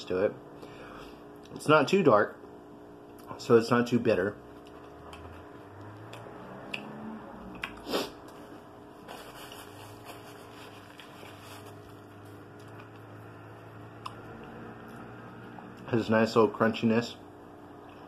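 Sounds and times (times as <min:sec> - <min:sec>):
low steady hum: 0:00.0 - 0:18.0
chewing chocolate: 0:04.6 - 0:06.9
paper napkin rustle: 0:07.9 - 0:12.8.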